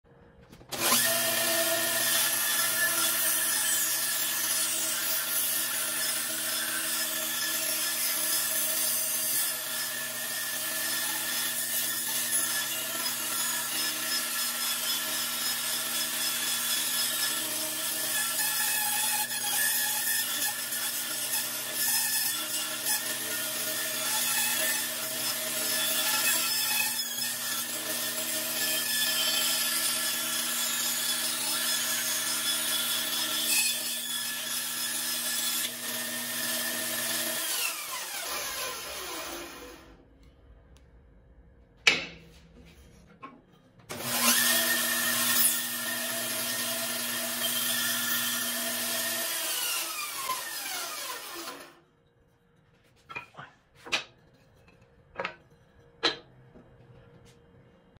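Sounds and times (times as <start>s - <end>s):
saw winding down: 0.7s - 2.3s
saw blade cutting wood: 0.7s - 39.8s, 43.9s - 51.8s
bandsaw humming: 43.9s - 51.8s.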